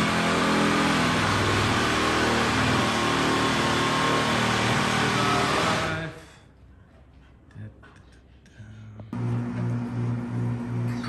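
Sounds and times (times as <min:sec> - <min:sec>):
power tool cutting drywall: 0:00.0 - 0:06.1.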